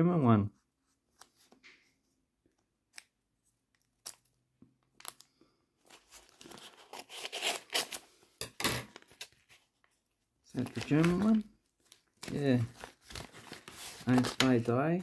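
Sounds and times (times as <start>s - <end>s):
paper tearing and crinkling: 5.9s - 8.2s, 10.6s - 14.6s.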